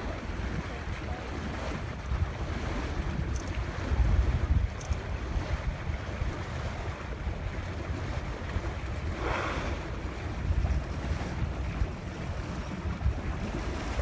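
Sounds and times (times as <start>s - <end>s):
waves washing: 0.0s - 14.0s
wind buffeting microphone: 0.0s - 14.0s
rushing hiss: 9.2s - 10.0s.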